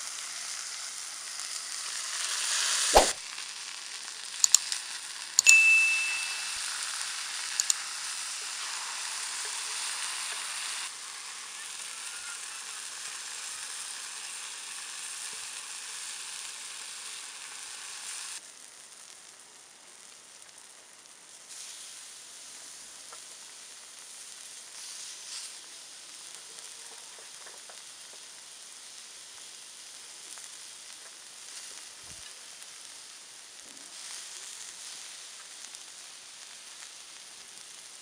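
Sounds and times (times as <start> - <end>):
meat and vegetables sizzling: 0.0 - 38.0.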